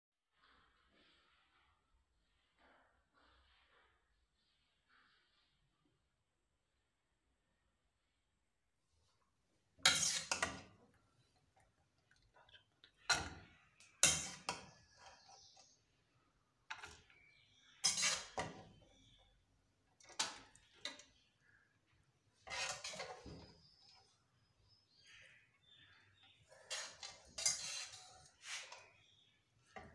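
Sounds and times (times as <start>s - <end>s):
grated carrot clattering into metal pot: 22.4s - 23.6s, 26.6s - 29.0s.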